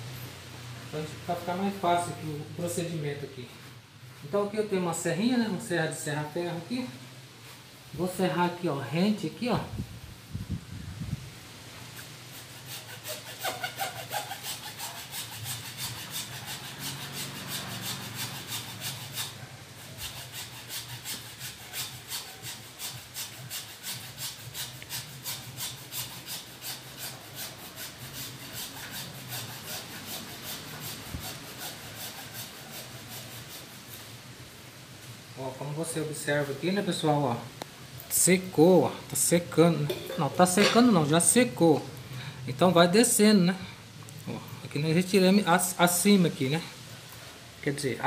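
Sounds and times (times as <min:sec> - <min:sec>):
hacksaw cutting wood: 0:12.3 - 0:33.8.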